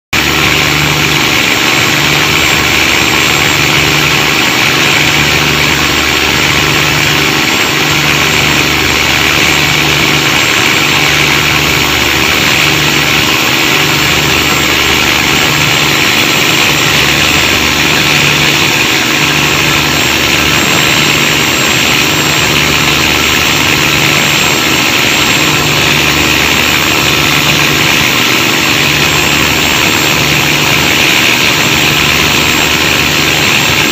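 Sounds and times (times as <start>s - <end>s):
loud diesel engine throbbing: 0.2s - 33.9s.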